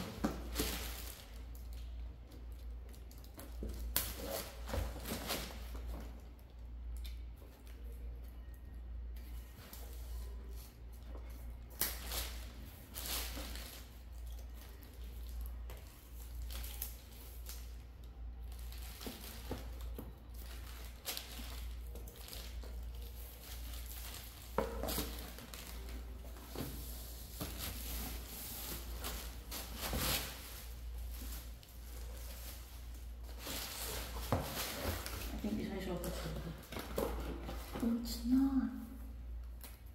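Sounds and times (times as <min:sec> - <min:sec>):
plastic wrapping crinkling and tearing: 0:00.0 - 0:08.1, 0:11.3 - 0:26.4.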